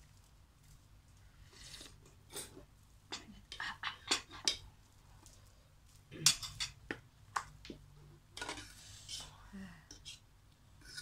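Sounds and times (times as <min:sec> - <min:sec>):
cutlery clinking in metal pot: 0:06.2 - 0:06.8, 0:08.4 - 0:08.7.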